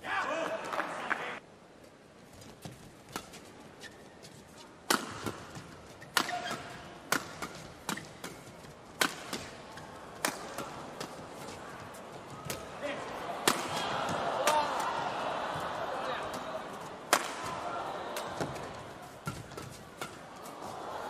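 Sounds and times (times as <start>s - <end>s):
badminton rackets hitting shuttlecock: 4.8s - 11.7s, 12.3s - 15.6s, 16.2s - 20.8s.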